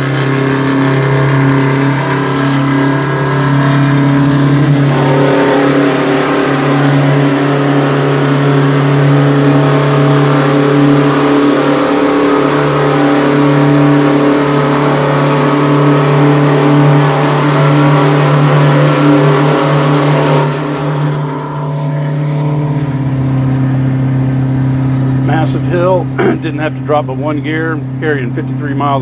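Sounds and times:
diesel engine running hard: 0.0s - 29.0s.

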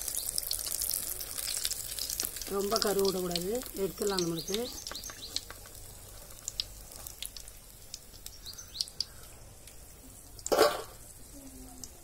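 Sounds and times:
oil sizzling: 0.0s - 12.0s
bird chirps: 4.0s - 5.5s, 8.2s - 9.3s.

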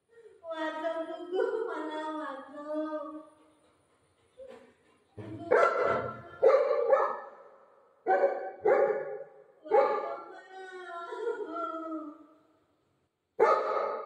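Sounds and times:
dog barking: 5.2s - 10.3s, 13.4s - 14.0s.

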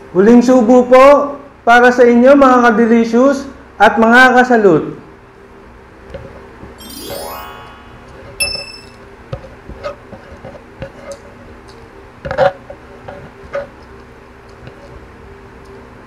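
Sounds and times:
bright ringing chime effect: 6.8s - 9.1s.

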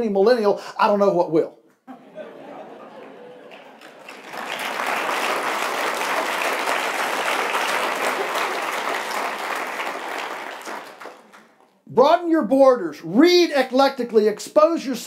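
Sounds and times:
audience applauding: 2.7s - 11.8s.

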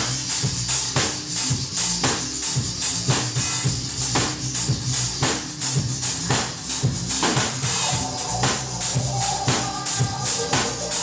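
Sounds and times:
drum kit with cymbals: 0.0s - 11.0s
synth keyboard: 7.7s - 11.0s.

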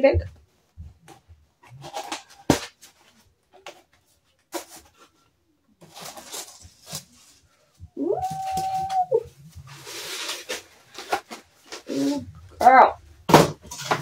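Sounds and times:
cardboard rustling: 1.0s - 5.2s, 5.8s - 12.3s
person saying ooh: 8.0s - 9.3s.

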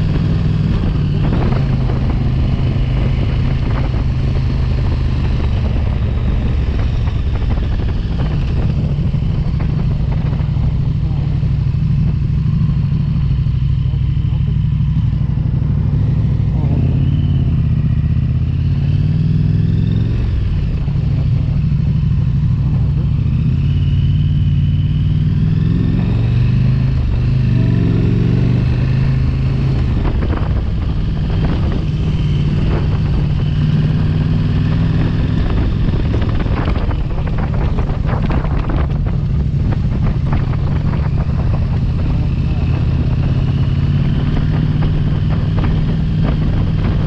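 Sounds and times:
motorcycle engine running: 0.0s - 47.0s
rapid crackling noise: 35.7s - 43.0s.

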